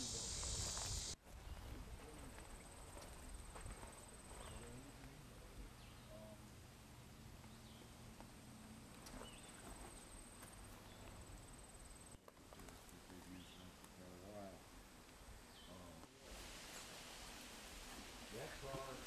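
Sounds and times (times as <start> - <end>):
faint high insect buzz: 0.0 - 1.2.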